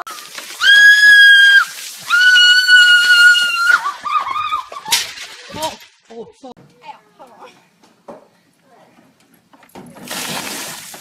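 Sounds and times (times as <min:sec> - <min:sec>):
girl screaming: 0:00.6 - 0:04.8.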